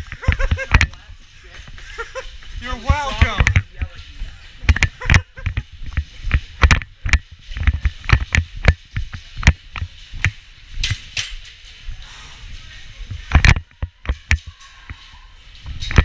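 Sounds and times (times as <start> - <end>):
sharp knocks and clicks: 2.9 - 4.0, 4.6 - 11.6.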